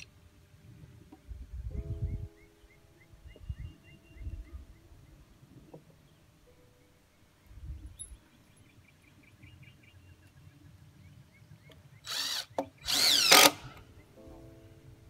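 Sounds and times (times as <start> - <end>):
cordless drill driving screw: 12.0 - 13.8.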